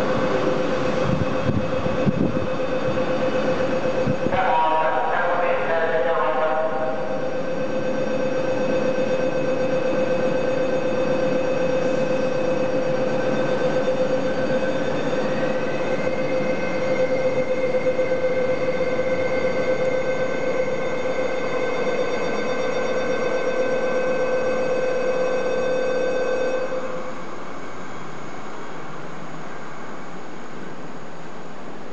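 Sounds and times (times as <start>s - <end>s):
electric train whine: 0.0s - 31.9s.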